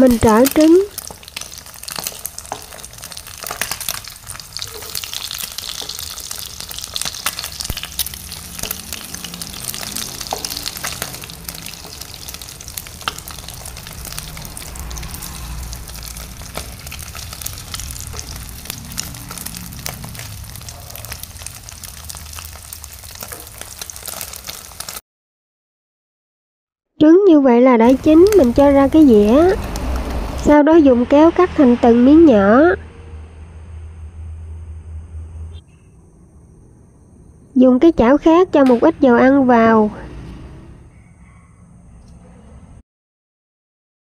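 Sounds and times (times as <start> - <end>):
eggs sizzling in oil: 0.0 - 25.0, 27.9 - 30.5.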